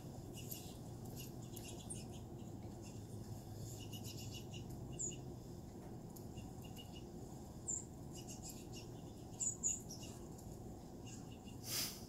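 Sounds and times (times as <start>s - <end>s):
songbirds chirping: 0.0s - 11.7s
low steady hum: 0.0s - 12.0s.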